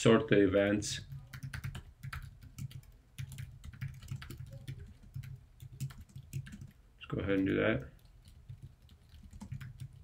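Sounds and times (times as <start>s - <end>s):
typing on computer keyboard: 1.1s - 6.8s, 7.4s - 10.0s.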